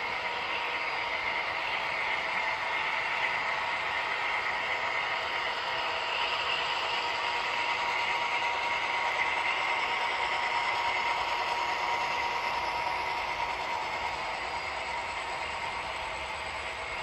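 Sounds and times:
model train wheels whirring: 0:00.0 - 0:17.0
thin steady whine: 0:00.0 - 0:17.0.

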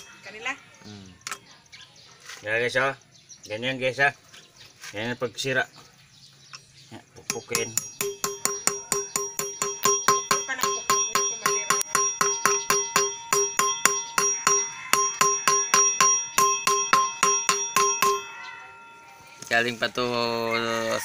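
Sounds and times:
hammer striking metal wheel hub: 0:07.3 - 0:18.4.

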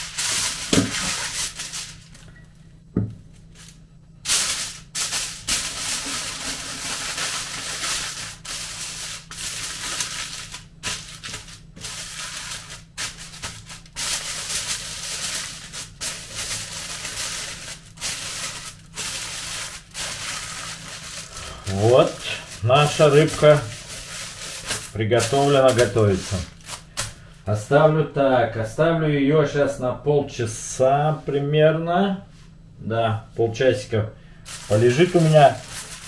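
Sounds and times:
aluminium foil crinkling: 0:00.0 - 0:02.4, 0:03.4 - 0:27.2, 0:34.4 - 0:36.0.

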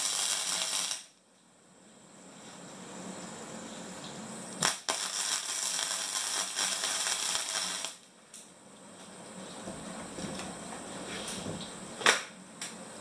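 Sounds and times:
welding arc crackling and hissing: 0:00.0 - 0:01.2, 0:02.2 - 0:08.5
sharp crack: 0:04.6 - 0:08.0.

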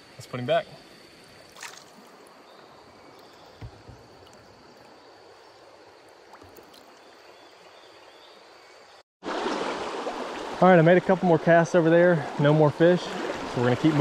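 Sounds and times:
stream water flowing over rocks: 0:01.2 - 0:08.5, 0:09.2 - 0:14.0
faint low knocks: 0:03.5 - 0:04.5.

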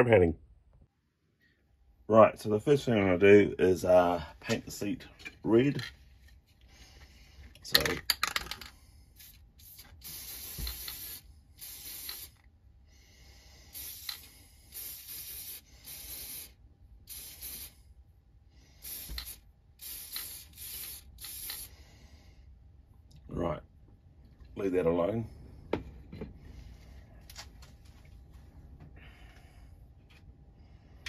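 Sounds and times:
spray paint can hissing: 0:09.2 - 0:12.4, 0:13.7 - 0:17.8, 0:18.8 - 0:21.7.

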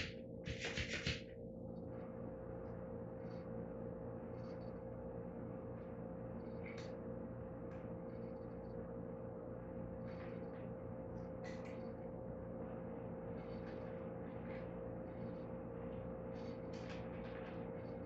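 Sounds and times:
electrical hum: 0:00.0 - 0:18.0.

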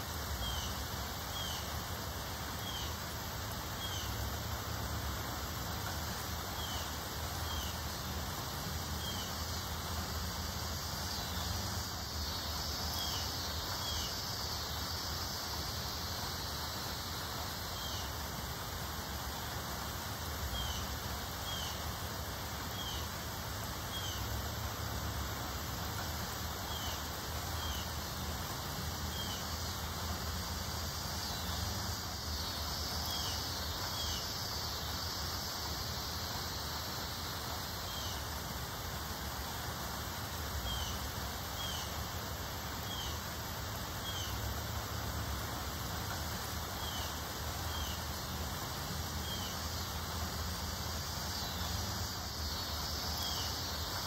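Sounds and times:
wind rustling tree foliage: 0:00.0 - 0:54.0.

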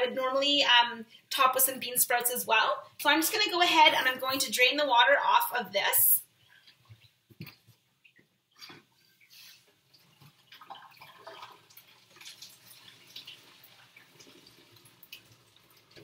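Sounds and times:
water pouring into sink: 0:10.0 - 0:16.0.

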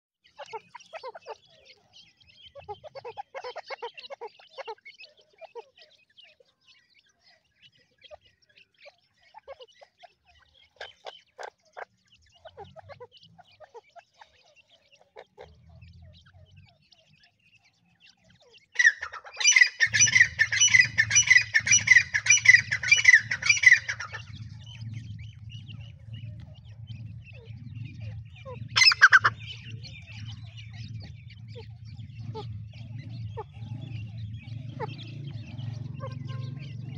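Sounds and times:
chicks peeping softly: 0:00.2 - 0:36.9
loud rapid bird calls: 0:00.3 - 0:36.9
low steady hum: 0:19.8 - 0:36.9.

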